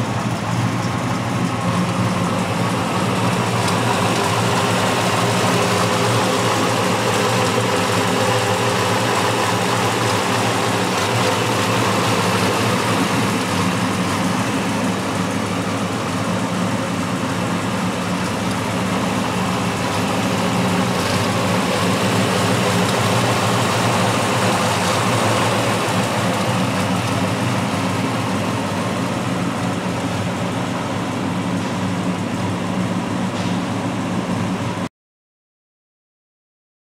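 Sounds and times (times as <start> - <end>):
pickup engine idling: 0.0 - 34.9.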